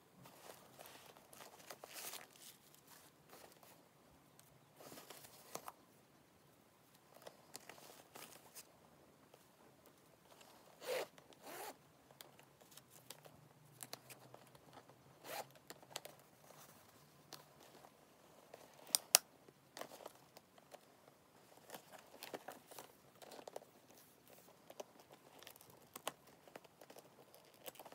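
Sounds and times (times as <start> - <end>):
handling of bag: 0.2 - 3.8
metal zipper pulled: 10.8 - 11.8, 15.2 - 15.6.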